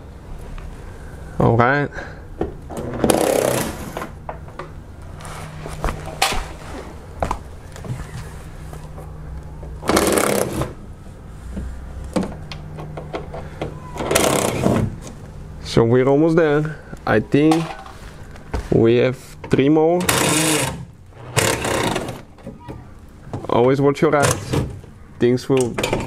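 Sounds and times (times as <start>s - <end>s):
steady low hum: 0.0s - 26.0s
power tool spinning: 20.1s - 22.3s.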